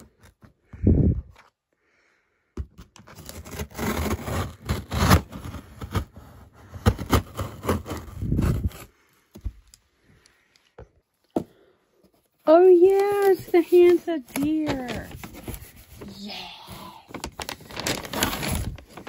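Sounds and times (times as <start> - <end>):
scissors cutting cardboard: 2.6 - 8.9.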